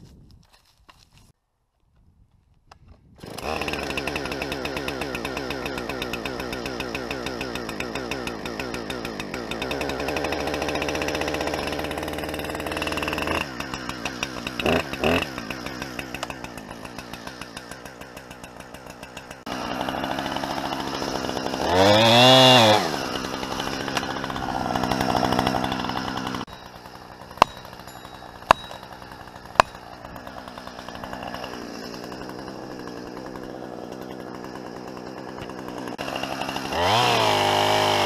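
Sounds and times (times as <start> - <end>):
chainsaw revving and idling: 3.2 - 38.0
sharp knocks: 29.5 - 29.8.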